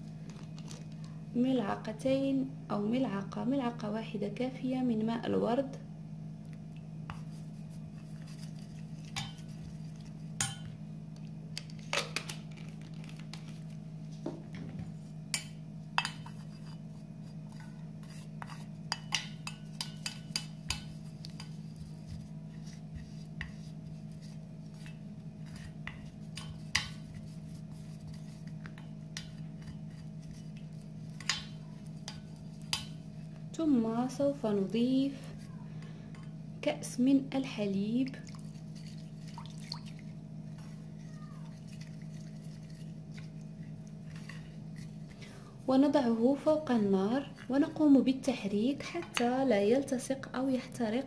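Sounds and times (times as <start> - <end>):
steady low hum: 0.0 - 51.0
spoon stirring and scraping saucepan: 7.1 - 10.8, 14.9 - 33.4, 38.4 - 45.9.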